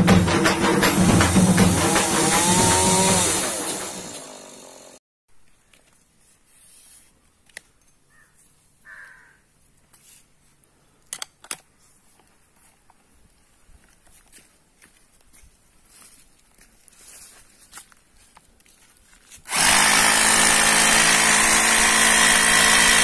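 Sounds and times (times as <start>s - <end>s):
intro music: 0.0s - 4.3s
drill being handled clicks: 11.1s - 11.7s.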